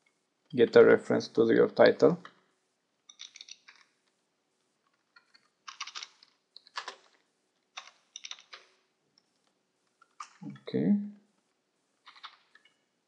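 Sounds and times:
keyboard typing: 0:03.1 - 0:03.8, 0:05.1 - 0:08.8, 0:12.0 - 0:12.8.

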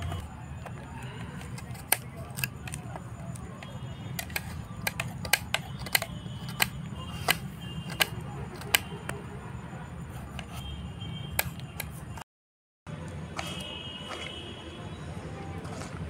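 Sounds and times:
knife blades clicking on plates: 0:00.0 - 0:09.2.

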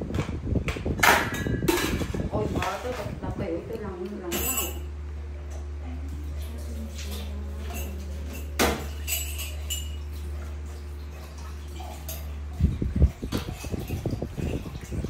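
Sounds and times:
steady low hum: 0:00.0 - 0:15.0
knocks and clinks on steel bowl: 0:01.0 - 0:02.8, 0:04.3 - 0:04.9, 0:07.6 - 0:10.1.

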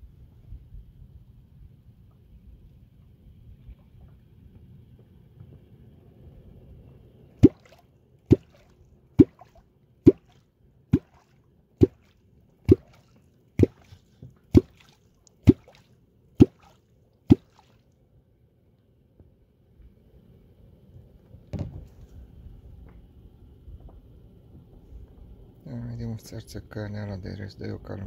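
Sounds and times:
fishing clonk striking water: 0:07.4 - 0:13.9, 0:14.5 - 0:15.8, 0:16.4 - 0:17.7.

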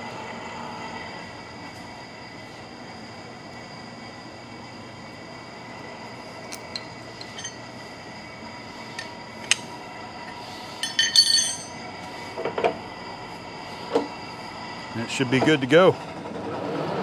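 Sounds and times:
machine shop hum: 0:00.0 - 0:17.0
wrench clinking on metal: 0:06.5 - 0:07.7, 0:08.9 - 0:09.7, 0:10.8 - 0:11.8.

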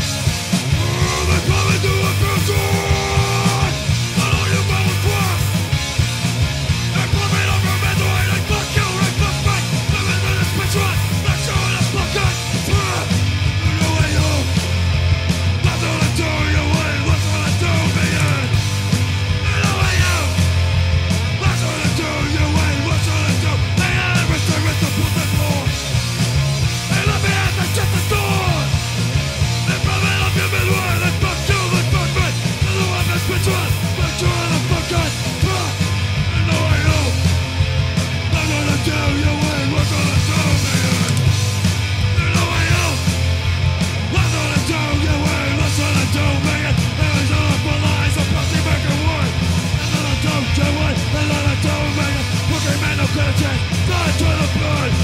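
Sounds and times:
punk rock song: 0:00.0 - 0:55.0
shouted vocals: 0:00.6 - 0:05.6, 0:06.9 - 0:14.6, 0:19.4 - 0:20.4, 0:26.9 - 0:28.8, 0:29.6 - 0:37.2, 0:42.2 - 0:43.1.

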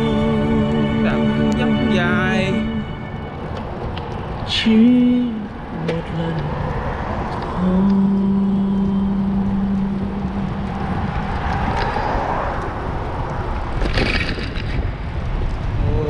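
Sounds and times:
steady humming tone: 0:00.0 - 0:06.8, 0:07.6 - 0:11.7
road rumble: 0:00.0 - 0:16.0.

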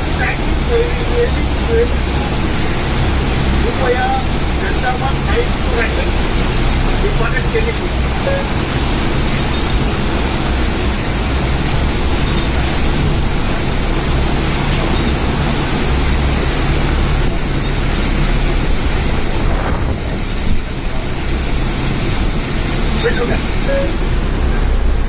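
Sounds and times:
wind rushing on microphone: 0:00.0 - 0:25.0.

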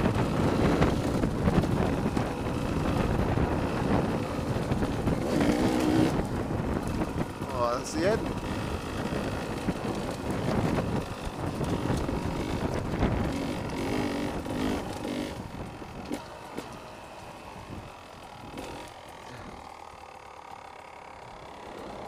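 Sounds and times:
wind on microphone: 0:00.0 - 0:16.2
motorcycle engine running: 0:00.0 - 0:22.0.

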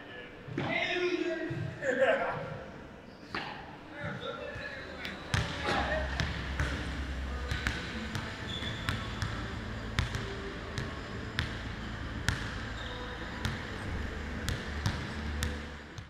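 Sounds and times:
low hum: 0:04.8 - 0:16.0
basketball bouncing on court floor: 0:05.3 - 0:06.9, 0:07.5 - 0:11.6, 0:13.4 - 0:13.7, 0:14.5 - 0:16.0.

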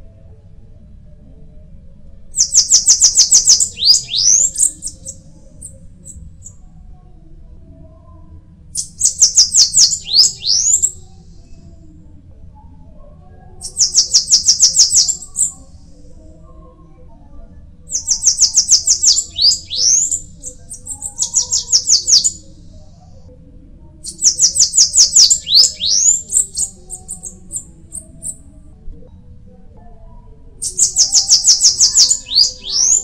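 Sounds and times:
bird singing thin rapid notes: 0:02.4 - 0:05.2, 0:08.8 - 0:11.0, 0:17.9 - 0:22.4, 0:24.1 - 0:27.6, 0:30.6 - 0:33.0.

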